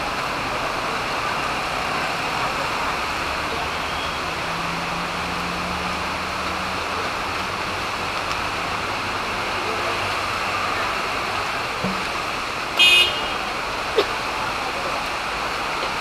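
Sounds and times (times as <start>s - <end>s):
rain rushing: 0.0s - 16.0s
road traffic passing: 0.0s - 16.0s
vehicle horn toot: 12.8s - 13.5s.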